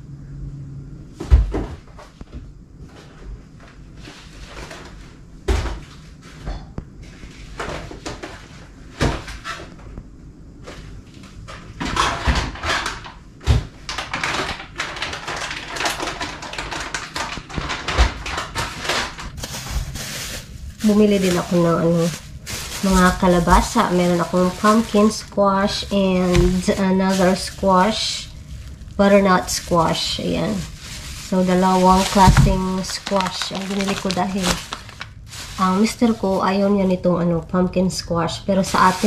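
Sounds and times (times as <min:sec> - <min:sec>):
packaging rustling: 0:14.0 - 0:36.6, 0:38.7 - 0:39.0.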